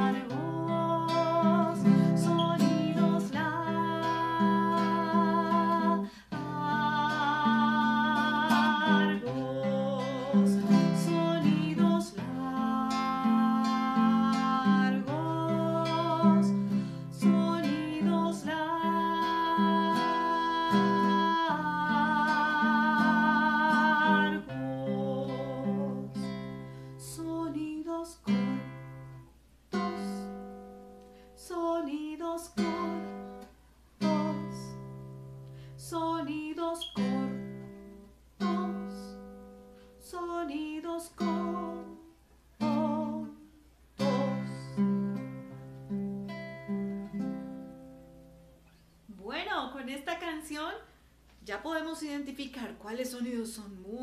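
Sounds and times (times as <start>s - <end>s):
woman singing held notes: 0.0s - 26.2s, 38.4s - 39.3s
nylon-string guitar strumming chords: 0.0s - 27.0s, 32.6s - 35.7s, 36.8s - 39.8s, 41.1s - 48.5s.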